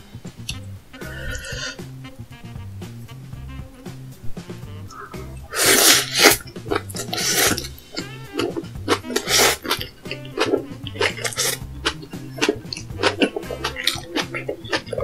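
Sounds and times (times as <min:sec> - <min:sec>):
background music with bass line: 0:00.0 - 0:15.0
slurping noodles: 0:01.1 - 0:01.8, 0:04.9 - 0:15.0
chewing: 0:04.9 - 0:15.0.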